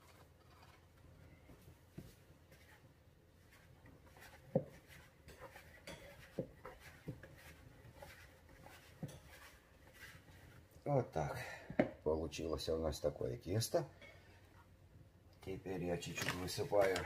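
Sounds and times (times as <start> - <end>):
hands kneading dough: 0.0 - 11.0.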